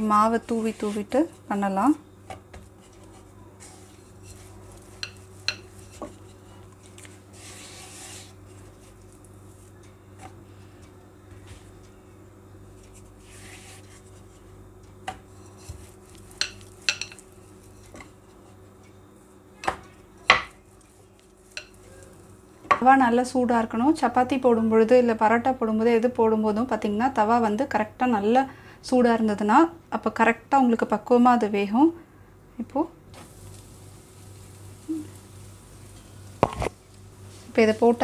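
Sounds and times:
hands rubbing dough: 0.0 - 1.6, 2.4 - 10.4, 12.8 - 14.6
flour being sprinkled: 33.2 - 37.6.

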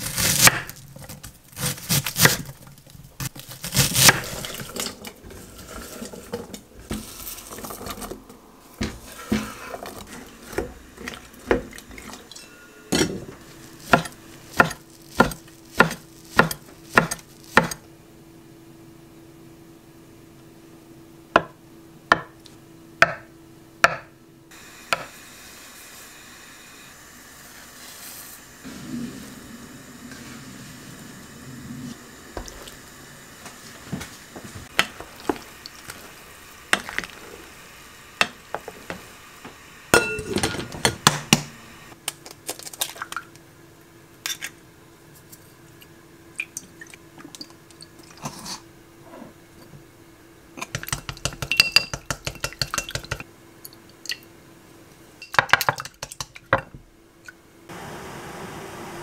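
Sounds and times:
utensils clinking against dishes: 11.8 - 13.3, 40.0 - 41.0.

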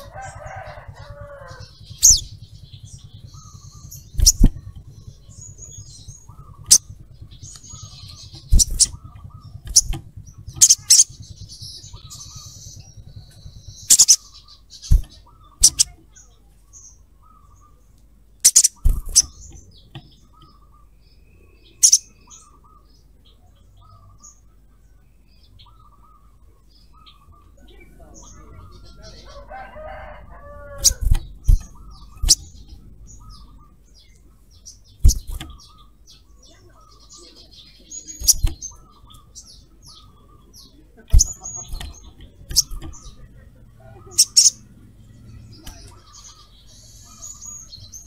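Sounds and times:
bird high twittering: 0.0 - 24.5, 25.2 - 48.0
bird sharp chips: 3.3 - 4.8, 5.6 - 17.7, 18.4 - 20.6, 29.8 - 33.5, 34.6 - 36.0, 38.0 - 40.1, 41.1 - 43.3.

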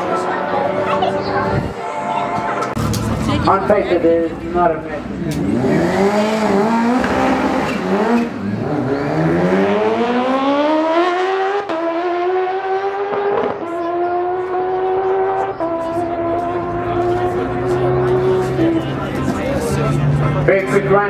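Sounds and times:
motorcycles accelerating hard: 5.0 - 20.5.

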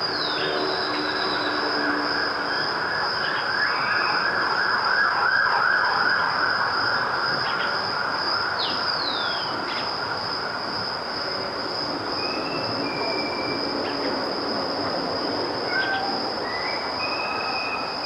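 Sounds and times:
falling whistled calls: 12.2 - 14.0, 15.6 - 18.0.

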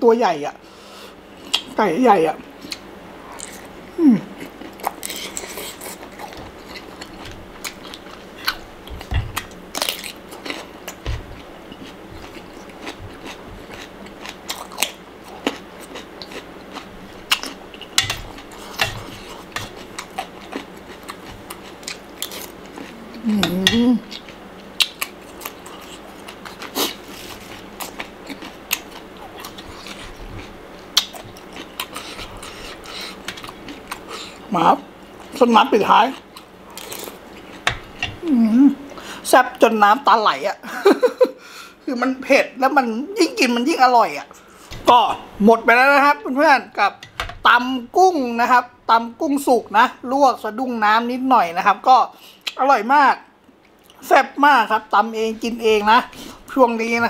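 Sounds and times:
crunchy chewing: 4.4 - 35.4, 36.0 - 38.3.

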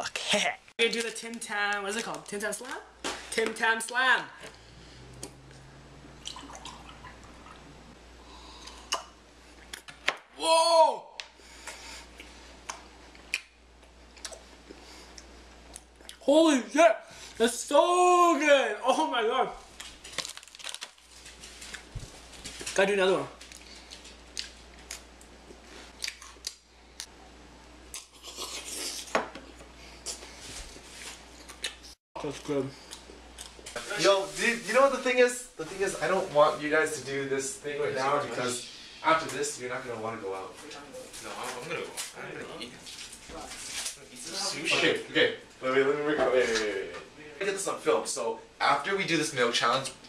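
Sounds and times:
person slurping: 4.5 - 9.2, 27.9 - 29.1
milk pouring into a glass: 6.2 - 7.6
biscuit crunching and chewing: 23.4 - 27.1, 27.9 - 29.1.

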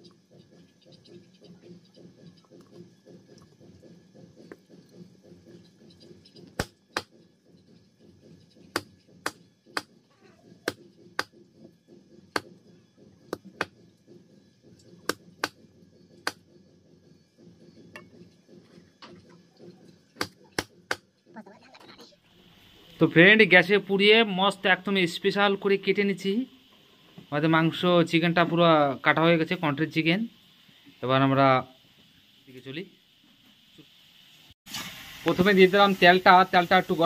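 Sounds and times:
knife chopping on wooden block: 6.4 - 7.2, 8.6 - 11.4, 12.3 - 12.6, 13.3 - 13.8, 16.2 - 16.4, 20.2 - 21.1.

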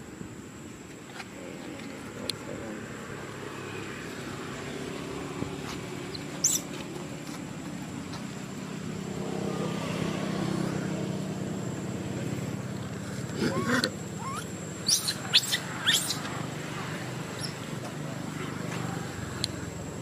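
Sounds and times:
motor vehicle engine running: 4.3 - 20.0
short high squeak: 13.4 - 16.2.

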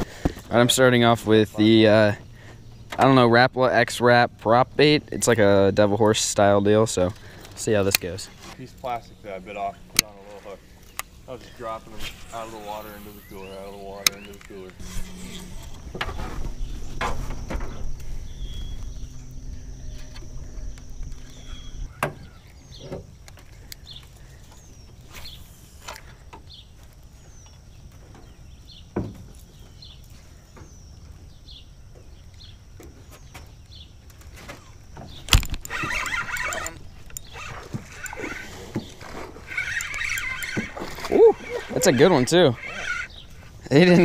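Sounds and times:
low rumble: 14.8 - 21.9
rough scrambling noise: 35.3 - 44.0.

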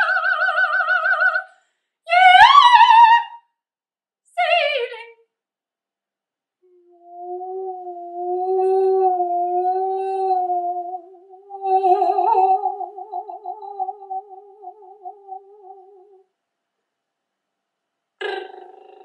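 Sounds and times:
woman singing long notes: 6.7 - 16.2.

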